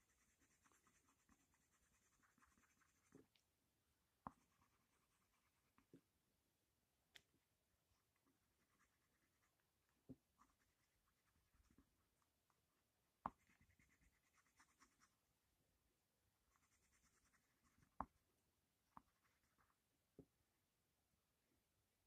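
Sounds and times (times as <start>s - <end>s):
pencil scratching on paper: 0.0s - 3.3s, 4.3s - 5.8s, 8.0s - 12.0s, 13.3s - 15.2s, 16.5s - 18.2s, 18.9s - 19.8s.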